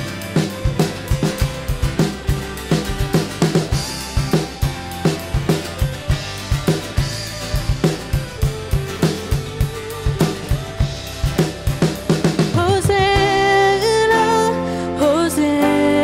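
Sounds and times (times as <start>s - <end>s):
band playing: 0.0s - 14.6s
drum kit beat: 0.0s - 14.6s
person singing: 12.4s - 16.0s.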